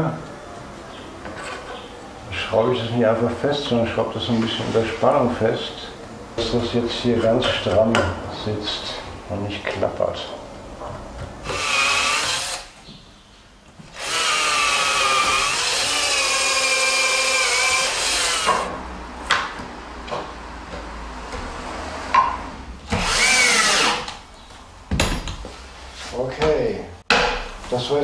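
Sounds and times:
electric drill running: 11.4s - 12.7s, 14.0s - 18.7s, 22.9s - 24.1s.

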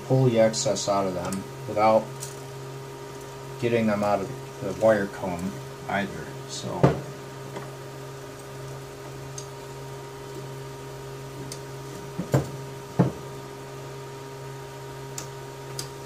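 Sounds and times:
steady background hum: 0.0s - 16.0s
sharp knocks: 12.2s - 13.2s.

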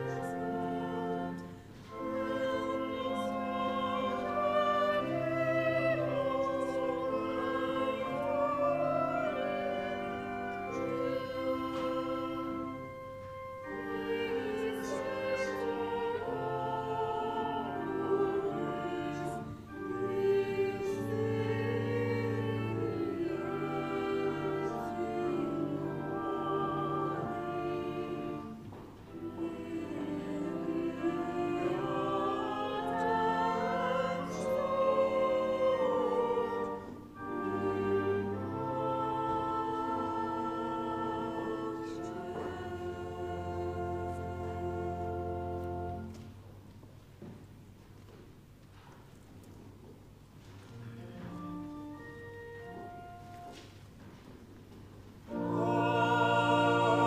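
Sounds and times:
held chords: 55.2s - 57.0s.

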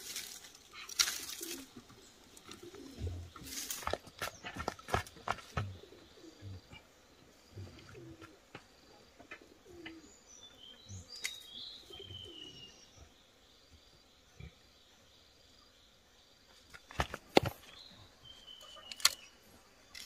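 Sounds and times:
tomato stems snapping and rustling: 0.0s - 2.8s, 3.4s - 4.9s, 18.6s - 19.3s
bird cooing: 0.7s - 10.2s, 11.8s - 12.7s.

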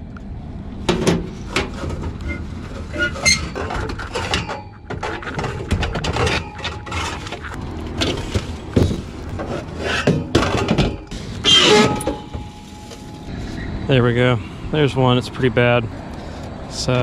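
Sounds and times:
sheet metal clattering and scraping: 0.8s - 13.2s.

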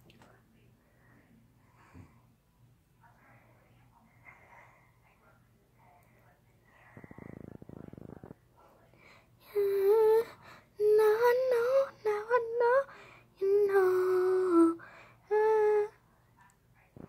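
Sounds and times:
girl singing wordless tune: 9.4s - 16.0s.

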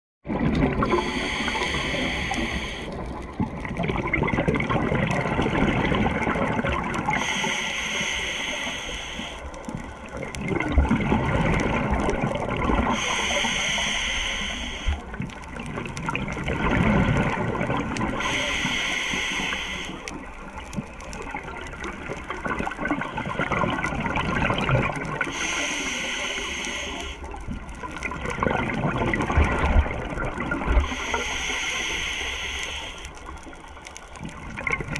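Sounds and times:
gurgle of exhaled bubbles: 0.3s - 7.6s, 8.3s - 34.9s
regulator hissing inhale: 0.9s - 3.0s, 7.1s - 9.6s, 12.9s - 15.2s, 18.2s - 20.3s, 25.3s - 27.4s, 30.8s - 33.3s.

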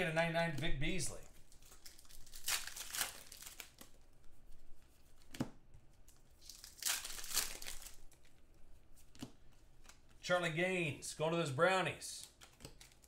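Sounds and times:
card wrappers tearing and crinkling: 1.4s - 4.1s, 6.0s - 8.4s, 12.2s - 13.0s.

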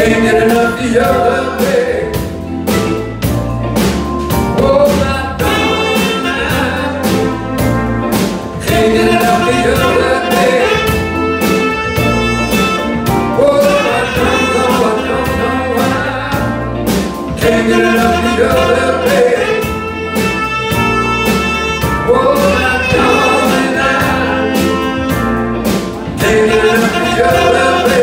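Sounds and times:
person singing: 0.0s - 2.9s, 4.6s - 7.8s, 8.6s - 20.4s, 21.3s - 25.2s, 26.1s - 28.0s
soul band playing: 0.0s - 28.0s.

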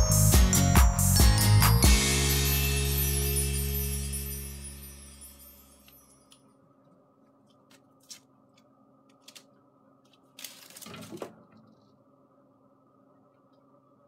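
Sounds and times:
background music: 0.0s - 5.8s.

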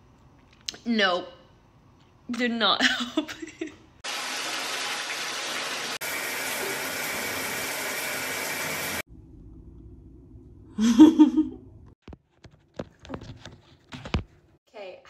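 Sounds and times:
shower water spraying: 4.0s - 9.1s
woman humming or laughing: 10.7s - 11.7s.

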